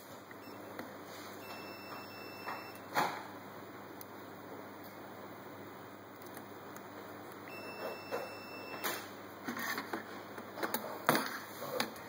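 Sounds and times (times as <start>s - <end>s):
faint high beep: 1.4s - 2.8s, 7.5s - 8.9s.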